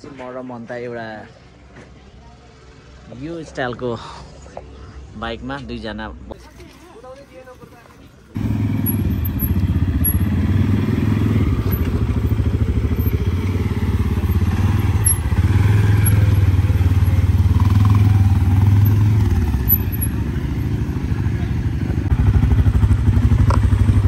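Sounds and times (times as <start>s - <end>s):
atv engine chugging: 8.4s - 24.0s.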